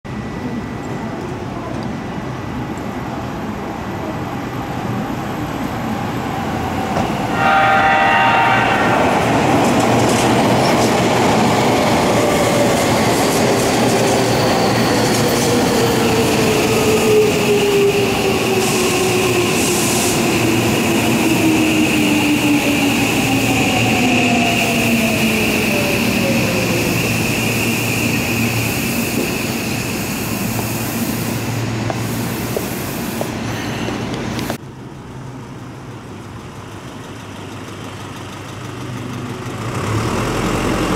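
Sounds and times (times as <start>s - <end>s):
train rolling over rails: 0.4s - 34.6s
train horn blast: 7.3s - 9.3s.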